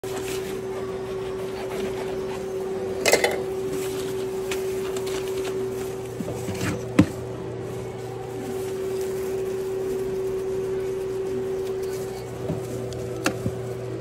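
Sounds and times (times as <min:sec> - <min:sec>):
steady hum: 0:00.0 - 0:14.0
knife sawing through bread: 0:00.4 - 0:02.6
paper crinkly rustle: 0:03.6 - 0:14.0.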